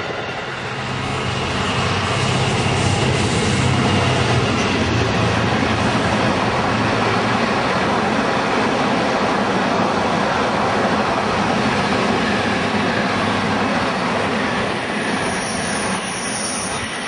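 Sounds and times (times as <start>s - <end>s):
diesel locomotive engine drone: 0.0s - 17.0s
train wheels on rail: 0.0s - 17.0s.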